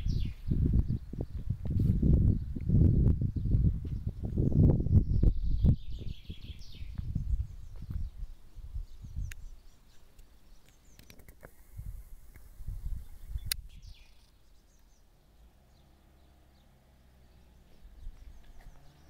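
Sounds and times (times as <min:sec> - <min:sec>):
bird chirps: 0:00.0 - 0:01.5, 0:02.2 - 0:11.3, 0:12.4 - 0:19.0
low rumbling on microphone: 0:00.0 - 0:09.6, 0:11.6 - 0:14.0, 0:15.2 - 0:19.0
sharp click: 0:13.4 - 0:13.8.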